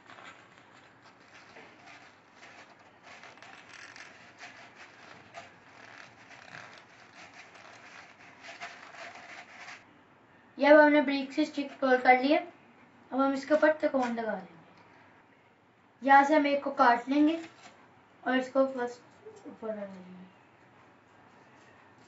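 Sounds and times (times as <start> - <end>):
paper rustling while folded: 0.0 - 9.8.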